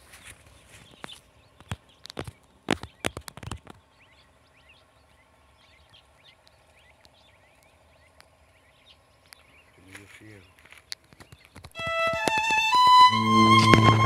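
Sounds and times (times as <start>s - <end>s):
small birds chirping: 0.0s - 13.2s
sharp clicks and knocks: 10.7s - 12.8s.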